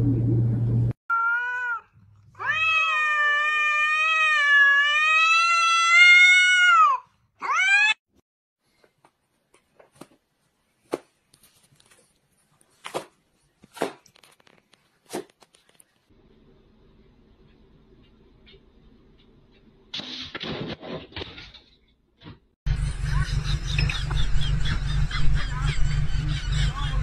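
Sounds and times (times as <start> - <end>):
cat yowling: 1.1 - 8.0.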